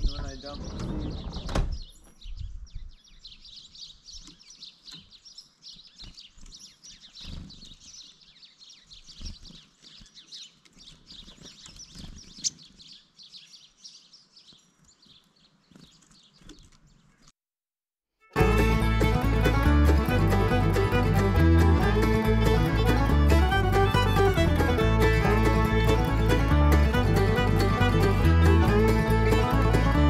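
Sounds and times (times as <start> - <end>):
songbirds chirping: 0.0 - 17.4.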